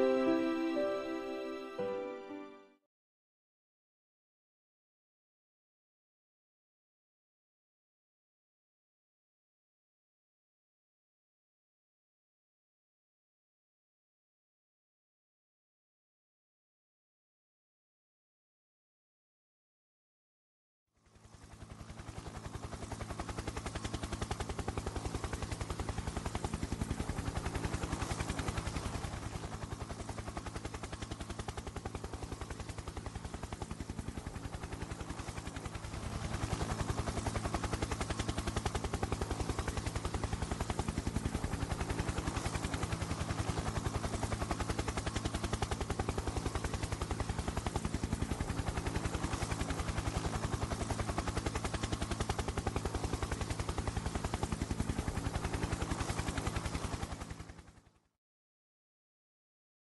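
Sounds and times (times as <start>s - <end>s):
helicopter rotor chopping: 21.2s - 57.6s.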